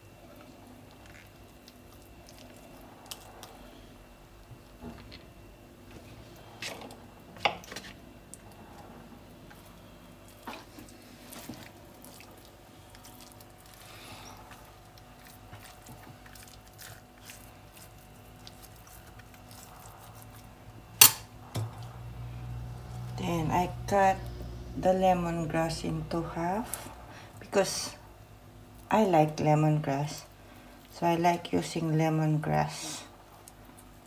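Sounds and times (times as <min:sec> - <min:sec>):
handling raw chicken: 0:09.5 - 0:20.6.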